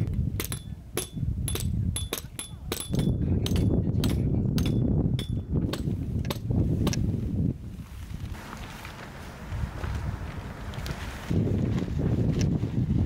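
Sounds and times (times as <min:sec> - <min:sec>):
wind buffeting microphone: 0:00.0 - 0:13.0
hammer striking metal pegs: 0:00.4 - 0:07.0.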